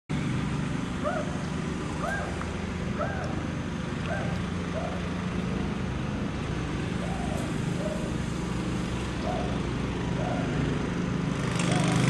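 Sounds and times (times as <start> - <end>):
traffic hum: 0.1 - 12.0
hawk calling: 2.0 - 3.5, 4.1 - 5.1, 7.0 - 8.2, 9.2 - 10.6.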